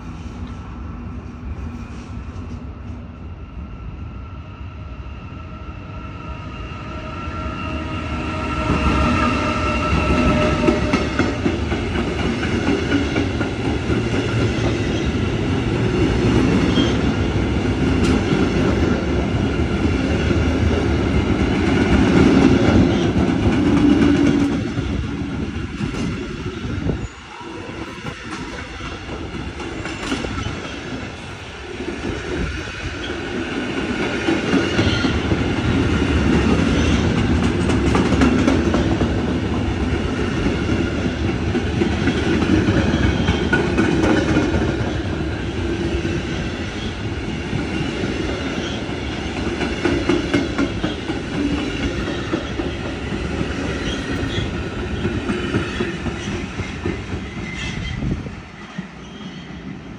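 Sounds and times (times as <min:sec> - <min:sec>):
train wheels clattering on rails: 0:08.6 - 0:27.0, 0:28.0 - 0:31.2, 0:31.9 - 0:59.7.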